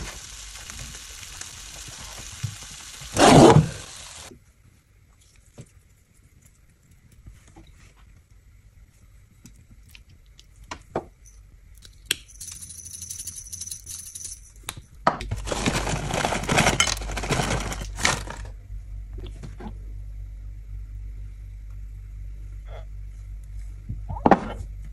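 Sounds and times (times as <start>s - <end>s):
low steady hum: 4.0s - 24.9s
shaker bottle rattling: 12.3s - 14.5s.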